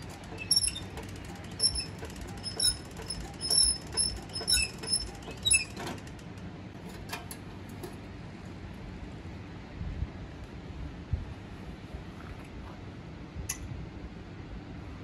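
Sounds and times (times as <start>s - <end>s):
squeaky metal creaks: 0.0s - 6.1s.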